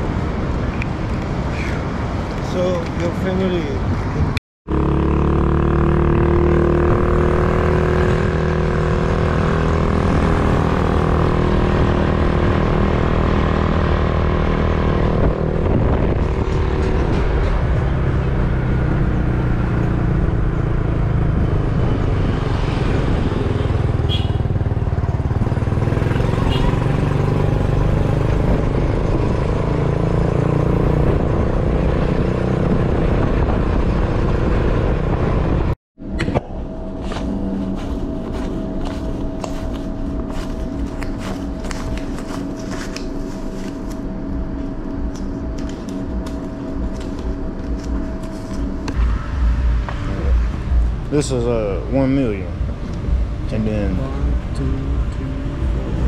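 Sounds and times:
road rumble: 0.0s - 56.0s
vehicle engine running: 34.4s - 56.0s.

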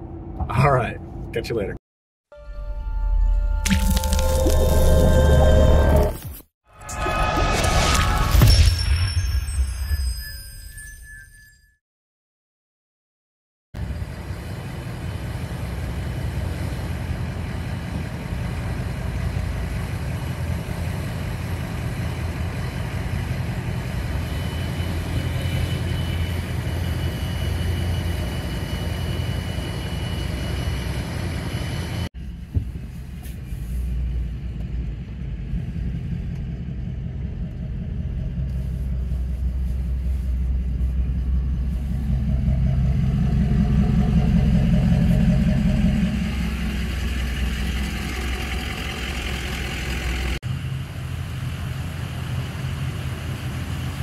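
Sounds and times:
truck engine running: 13.8s - 54.0s.

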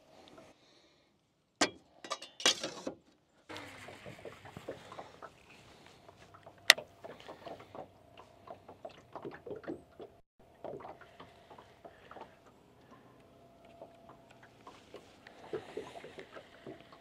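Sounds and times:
water lapping against boat hull: 3.5s - 17.0s.

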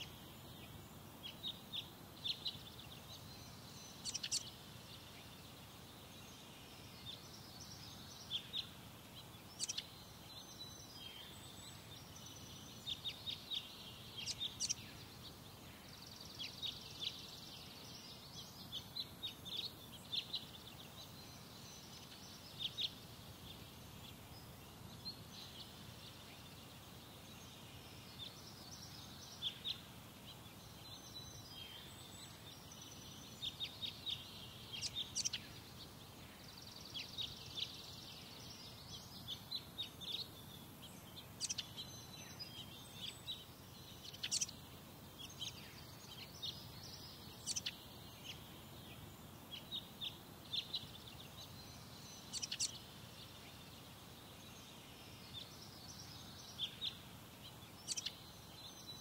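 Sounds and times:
birds chirping: 0.0s - 59.0s
faint low background noise: 0.0s - 59.0s.

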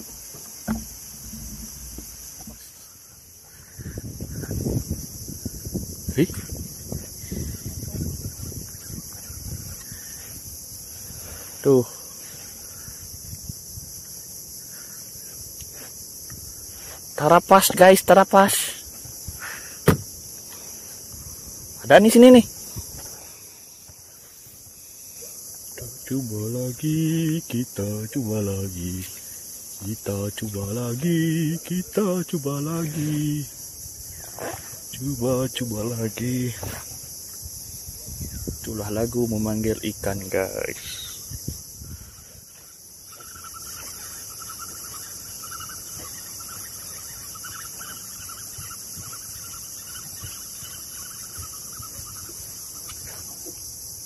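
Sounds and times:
high-pitched insect drone: 0.0s - 54.0s
man singing held notes: 25.8s - 29.1s, 29.8s - 33.5s.

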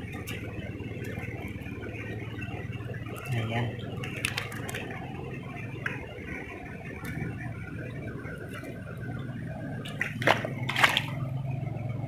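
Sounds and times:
water splashing: 0.0s - 5.1s, 8.2s - 11.6s
flowing water: 0.0s - 12.0s.

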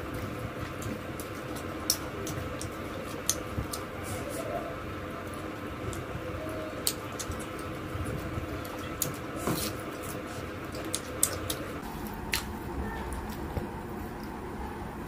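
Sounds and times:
faint steady hum: 0.0s - 15.0s
wet chewing and lip smacks: 10.0s - 13.4s.

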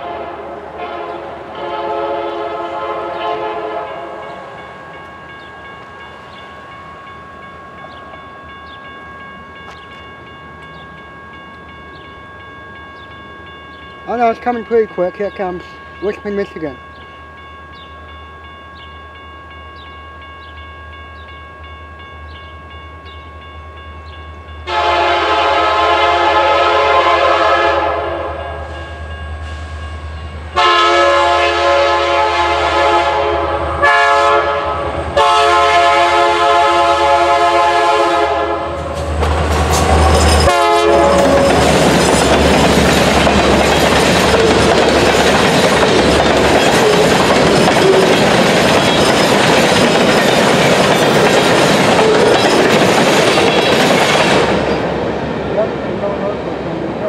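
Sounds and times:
locomotive air horn: 0.0s - 4.4s, 24.7s - 28.9s, 30.6s - 38.9s, 40.4s - 41.6s
crossing bell ringing: 0.8s - 55.0s.

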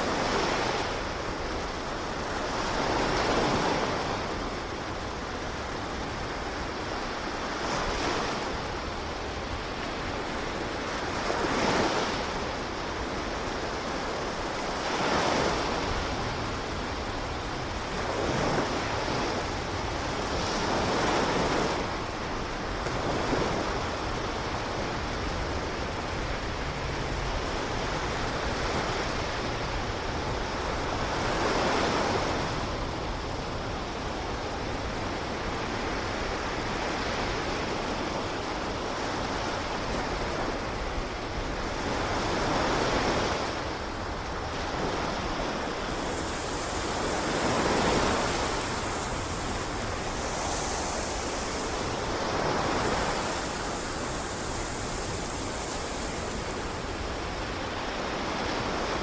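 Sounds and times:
ocean waves washing: 0.0s - 59.0s.

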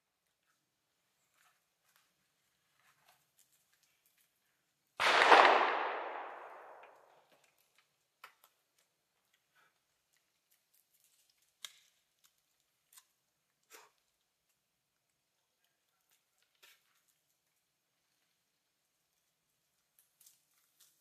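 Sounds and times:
rifle handling clicks: 5.0s - 7.0s
gunshot with echo: 5.0s - 7.1s.

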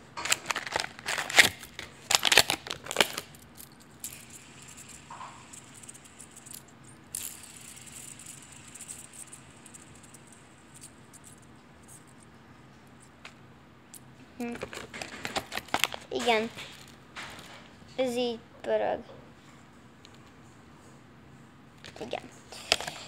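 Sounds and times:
fidget spinner clattering clicks: 0.2s - 12.3s, 12.9s - 17.4s, 21.9s - 23.0s
fidget spinner whirring: 0.4s - 18.3s, 21.9s - 23.0s.

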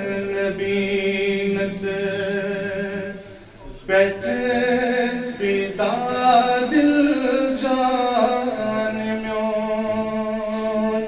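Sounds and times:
man singing through pa system: 0.0s - 11.0s.

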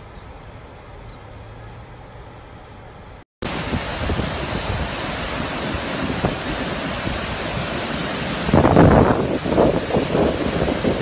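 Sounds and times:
floodwater rushing over rocks: 3.4s - 11.0s.

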